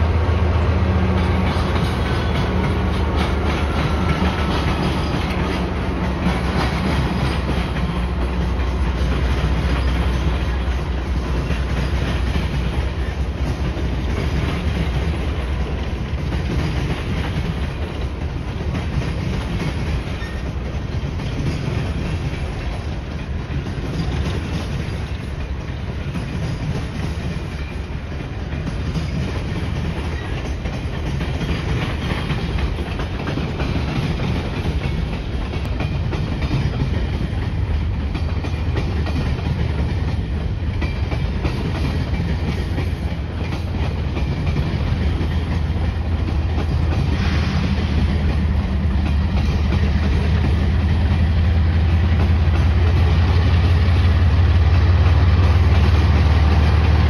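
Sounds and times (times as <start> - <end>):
diesel locomotive engine rumble: 0.0 - 57.0
train cars rolling by: 0.0 - 57.0
wheels clacking over rail joints: 0.0 - 57.0.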